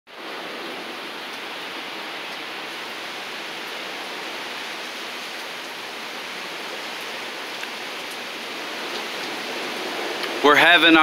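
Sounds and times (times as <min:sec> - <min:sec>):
hurricane wind and rain: 0:00.1 - 0:11.0.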